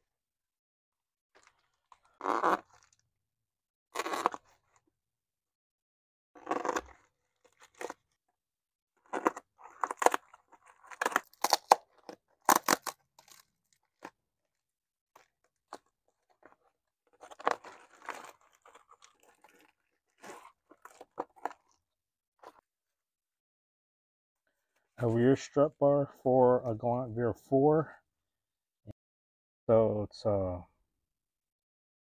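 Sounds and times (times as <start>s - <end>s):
packing tape ripping: 10.9s - 13.5s.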